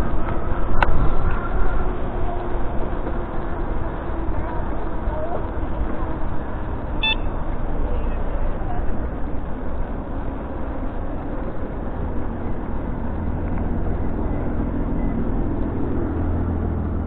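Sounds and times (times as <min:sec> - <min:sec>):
wind on microphone: 0:00.0 - 0:07.9
car traffic passing: 0:00.0 - 0:17.0
wheels rumbling on pavement: 0:00.0 - 0:17.0.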